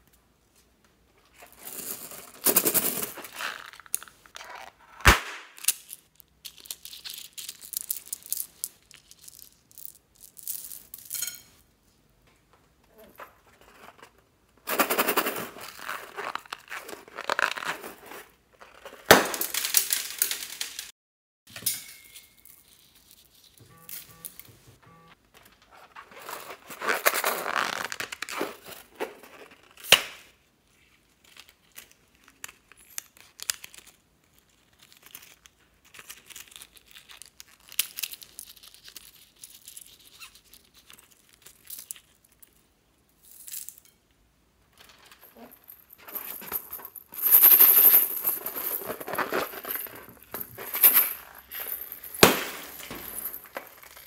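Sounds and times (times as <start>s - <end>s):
sharp balloon snap: 5.0s - 5.6s
rubbery rubbing and crinkling: 25.6s - 29.8s.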